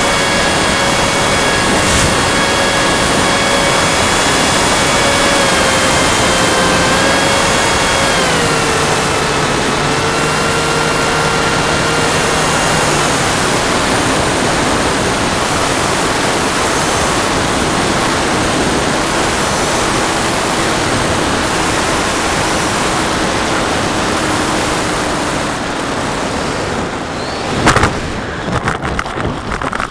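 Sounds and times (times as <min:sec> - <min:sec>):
electric motor whine: 0:00.0 - 0:29.9
wind rushing: 0:00.4 - 0:04.8
model plane thumping into grass: 0:27.6 - 0:29.9.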